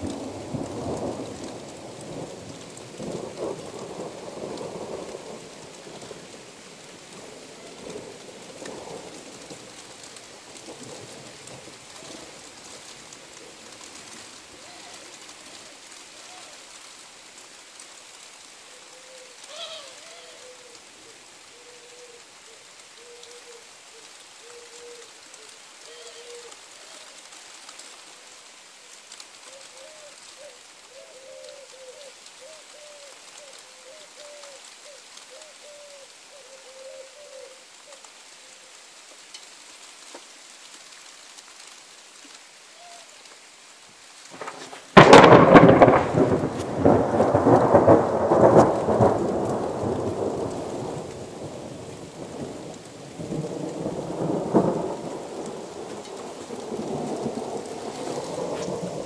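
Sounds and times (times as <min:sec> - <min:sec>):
thunderclap and rumbling thunder: 0:00.0 - 0:10.0, 0:44.4 - 0:59.0
steady rain falling: 0:00.0 - 0:59.0.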